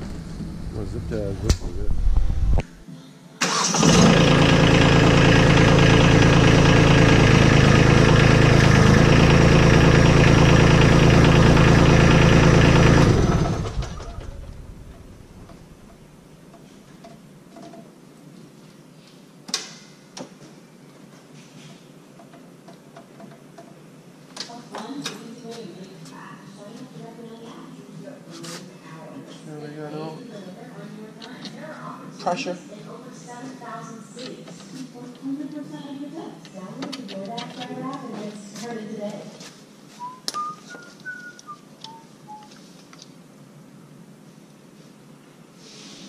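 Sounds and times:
tractor engine running: 0.0 - 2.6, 3.4 - 15.9.

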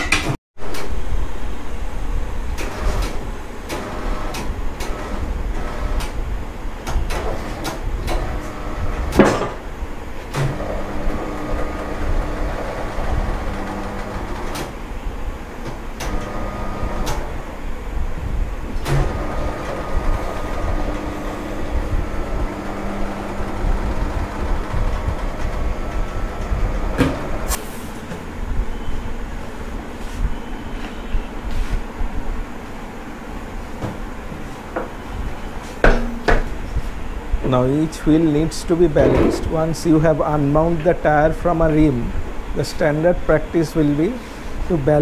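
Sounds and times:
machine motor humming: 0.6 - 17.6, 18.3 - 29.8.

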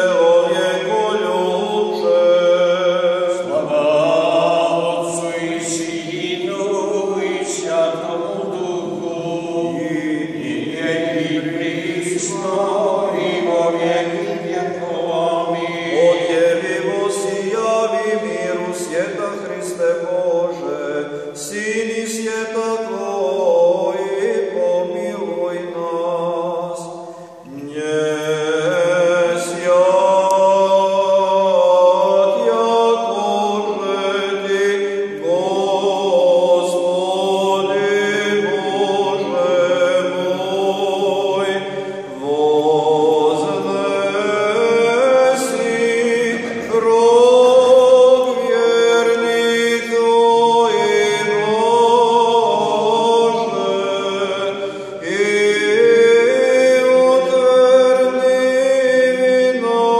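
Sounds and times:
men's voices chanting: 27.6 - 59.1.

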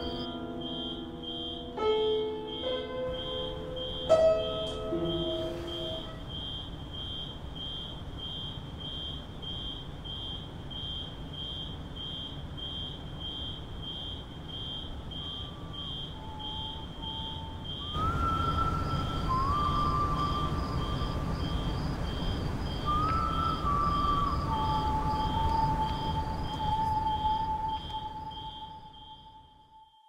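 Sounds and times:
piano chord ringing: 0.0 - 6.5
faint high piano notes: 0.0 - 6.8, 15.2 - 30.0
steady high-pitched tick: 24.7 - 28.7.

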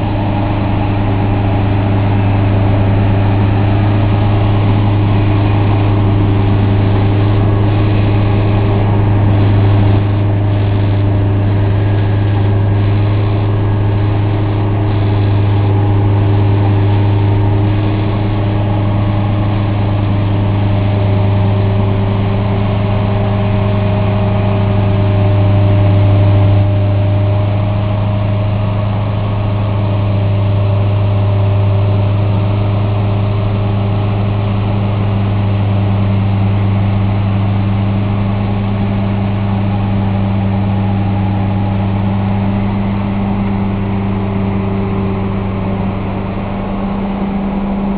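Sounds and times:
train engines droning: 0.0 - 47.9.

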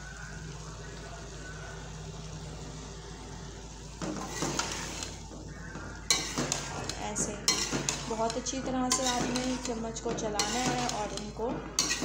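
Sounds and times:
chickpeas sizzling in oil: 0.0 - 12.0
metal spoon scraping pan: 4.0 - 5.2, 6.0 - 12.0.

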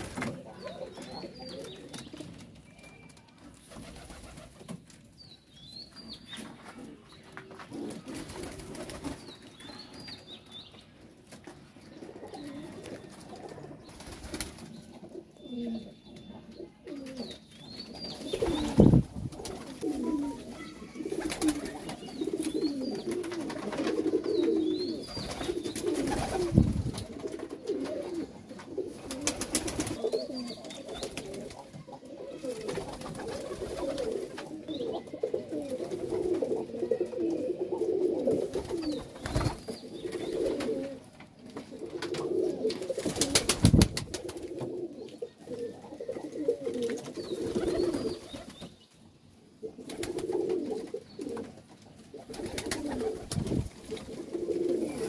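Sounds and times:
pigeons cooing: 11.9 - 48.6, 49.6 - 55.0.

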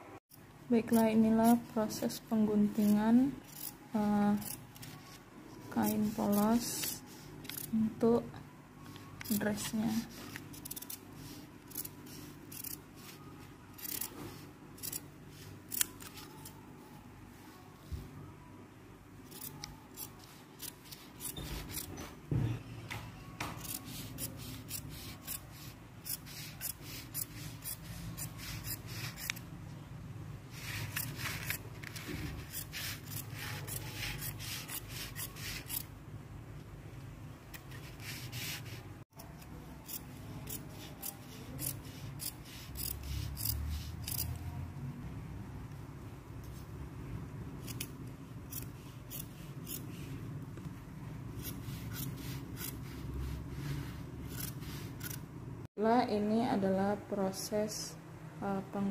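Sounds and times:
shears snipping fabric: 0.8 - 7.8, 9.2 - 16.6, 19.3 - 22.0, 23.5 - 29.4, 30.5 - 35.9, 37.6 - 44.5, 51.3 - 55.2.

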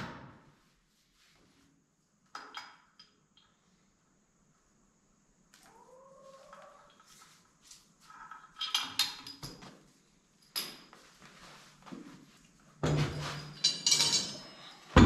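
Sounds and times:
metal parts clattering on concrete: 8.1 - 9.7, 12.8 - 15.0.

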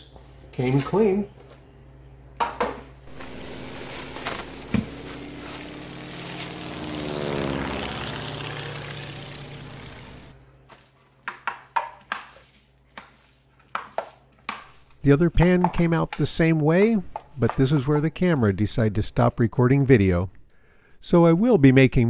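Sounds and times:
passing engine: 3.1 - 10.4.

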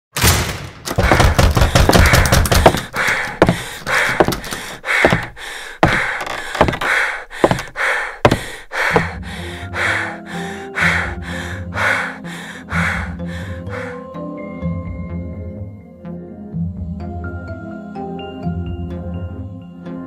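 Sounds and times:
sharp knocks: 0.8 - 9.2.

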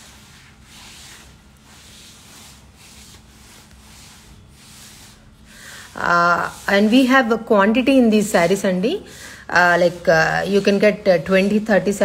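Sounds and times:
faint steady hum: 0.0 - 12.0
silk fabric rustling: 0.0 - 12.0.

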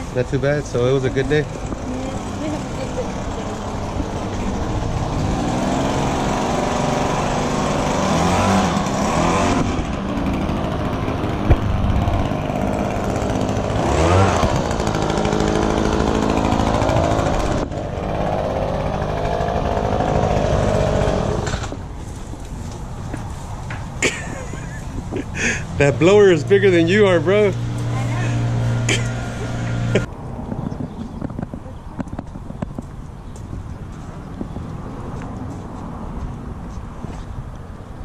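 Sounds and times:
leaf blower revving: 0.9 - 21.7, 25.4 - 30.1.

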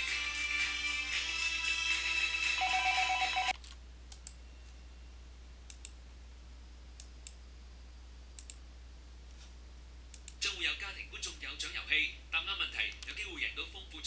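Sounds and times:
tv broadcast music: 0.0 - 3.6
faint steady hum: 2.8 - 14.0
computer mouse clicks: 5.7 - 6.0, 8.4 - 8.6.

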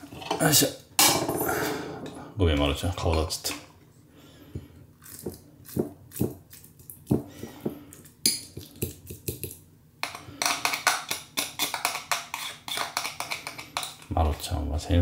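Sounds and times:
spoon scraping against a dish: 10.0 - 14.1.

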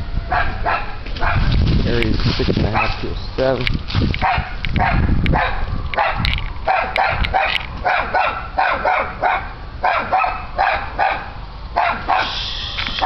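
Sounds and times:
dog barking: 0.3 - 1.5, 2.8 - 3.0, 4.2 - 12.4.

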